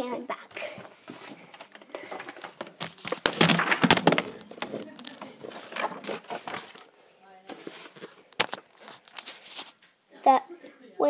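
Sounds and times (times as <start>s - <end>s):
phone handling rustling and knocks: 1.2s - 6.8s.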